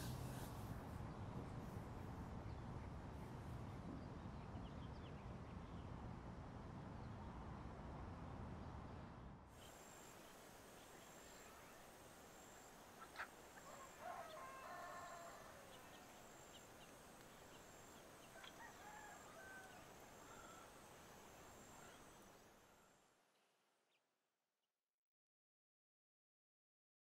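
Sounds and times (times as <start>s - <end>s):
soft steady hiss: 0.0s - 8.8s, 9.4s - 24.0s
distant bird calls: 9.6s - 22.6s.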